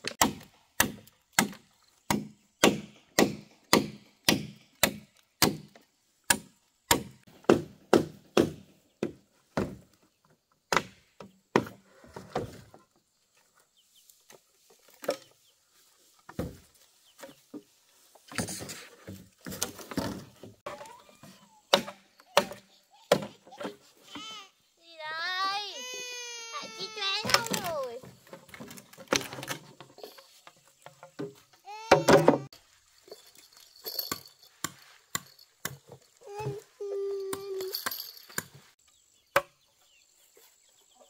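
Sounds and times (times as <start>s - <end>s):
chopping strikes on bamboo: 0.0s - 9.8s, 10.7s - 11.8s, 21.7s - 23.3s, 39.3s - 39.6s.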